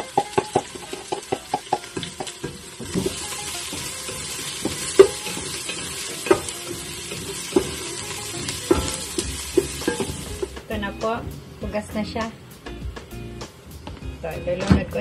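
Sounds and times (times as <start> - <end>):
wooden spoon knocking a pot: 0.0 - 10.6
garlic and onion sizzling in oil: 0.0 - 15.0.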